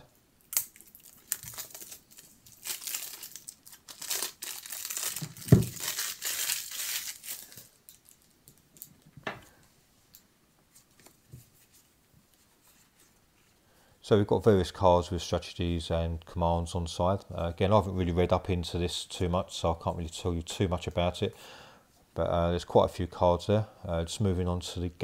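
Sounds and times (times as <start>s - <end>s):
cellophane crinkling: 0.5s - 9.1s.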